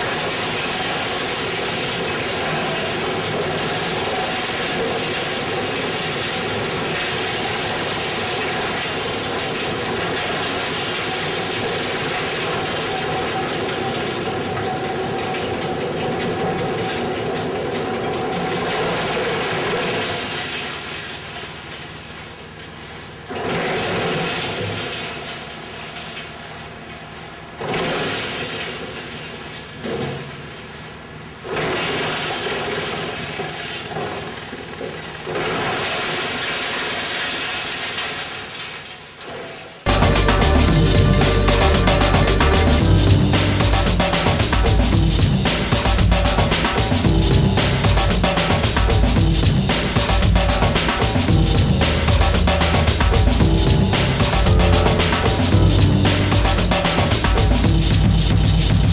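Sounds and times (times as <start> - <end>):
wood chipper chipping branches: 0.0 - 26.3.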